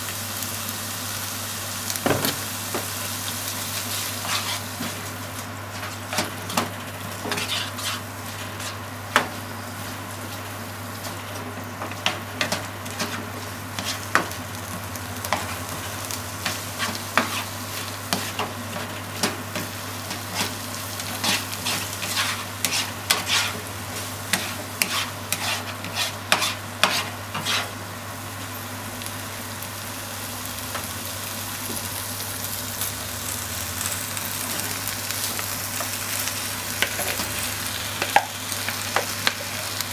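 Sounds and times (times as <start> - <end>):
food sizzling in a frying pan: 0.0 - 39.9
utensil knocking and scraping pan: 24.4 - 27.7.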